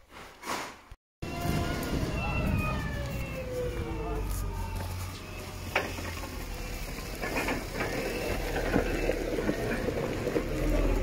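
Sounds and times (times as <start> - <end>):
clattering and crunching over gravel: 4.8 - 11.0.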